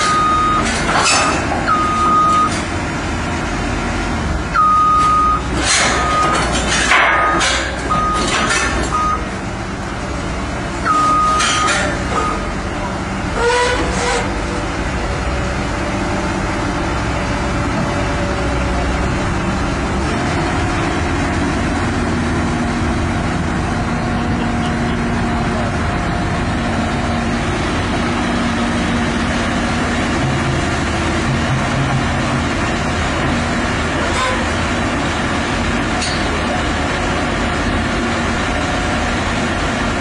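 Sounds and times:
excavator diesel engine running: 0.0s - 40.0s.

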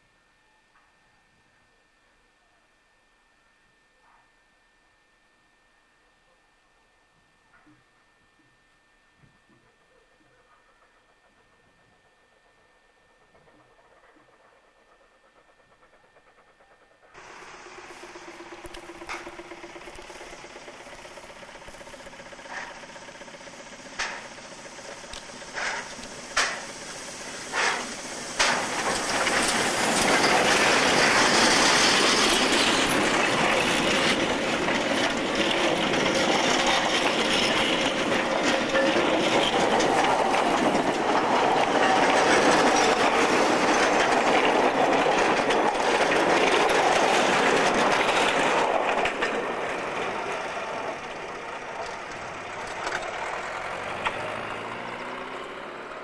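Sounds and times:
steam train chuffing: 9.6s - 56.0s
train wheels clattering on rails: 13.3s - 55.2s.

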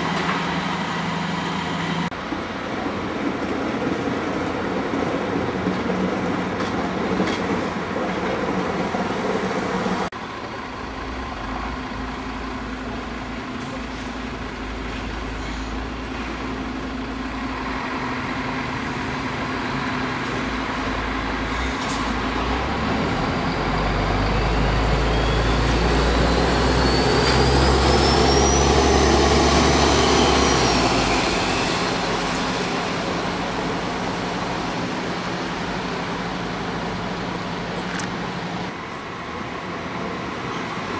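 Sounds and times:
street noise: 0.0s - 40.9s
large vehicle rumble: 9.5s - 40.9s.

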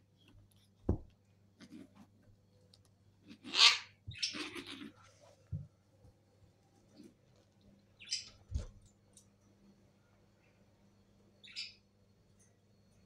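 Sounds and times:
kittens scuffling and rustling: 0.1s - 3.5s.

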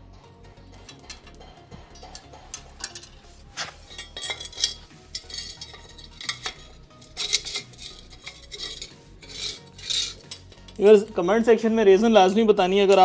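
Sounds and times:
welding electrode scraping steel: 2.5s - 10.8s.

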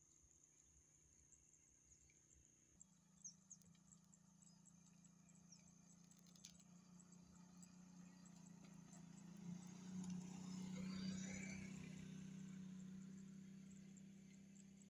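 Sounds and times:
faint chirps and ticks: 0.0s - 14.9s
motorbike engine hum: 3.8s - 14.9s.

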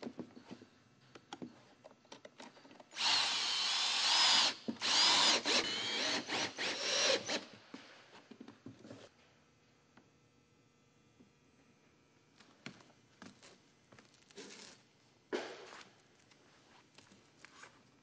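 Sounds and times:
cordless drill whining: 3.0s - 7.4s.

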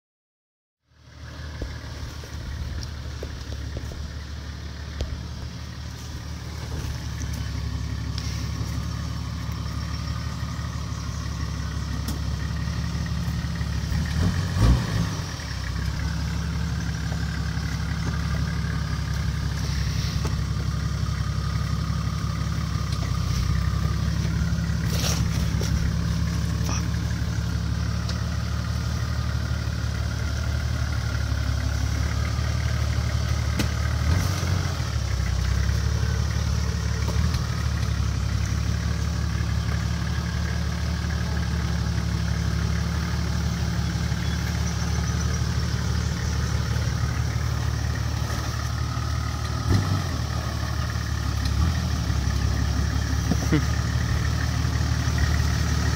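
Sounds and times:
diesel engine running at low revs: 0.8s - 55.9s.

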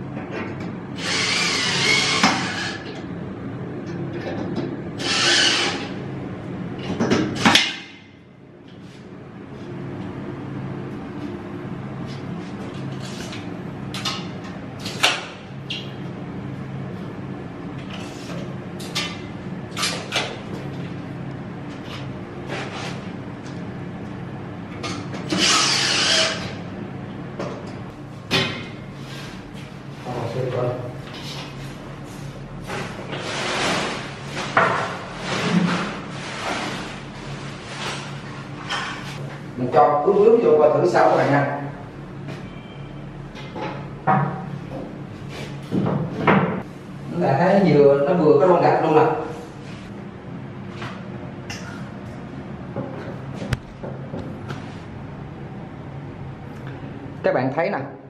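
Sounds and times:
cordless drill running: 1.0s - 2.8s, 5.0s - 5.9s, 25.4s - 26.4s.

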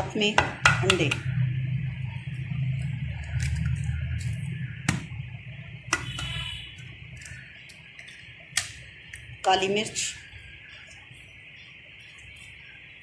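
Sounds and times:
steady low hum: 0.0s - 13.0s
egg tapping on steel pot: 0.4s - 1.3s.

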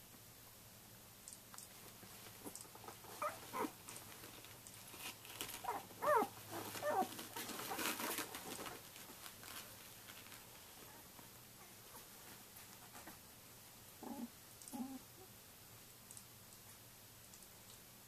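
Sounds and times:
soft rustling of bedding: 1.7s - 15.1s
puppy squeaks and whimpers: 3.2s - 3.7s, 5.6s - 8.2s.

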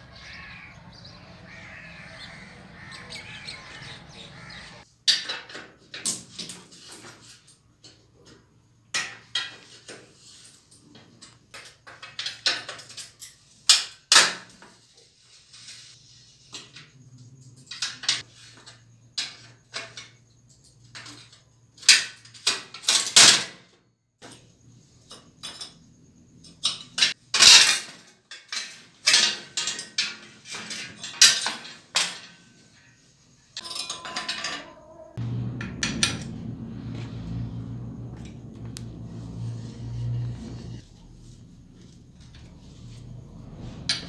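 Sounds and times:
metal tools clinking and knocking: 5.1s - 13.9s, 25.1s - 32.7s, 33.6s - 36.6s
low hum with rattle: 33.7s - 44.0s.

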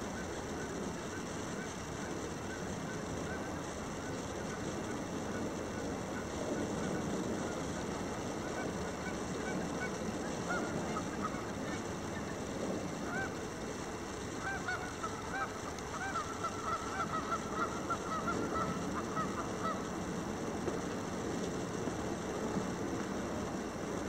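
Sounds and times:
low background noise: 0.0s - 24.0s
geese honking: 13.0s - 13.5s, 14.3s - 20.0s.

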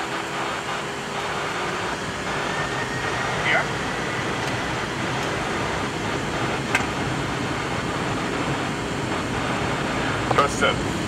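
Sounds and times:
steady flight deck noise: 0.0s - 11.0s.

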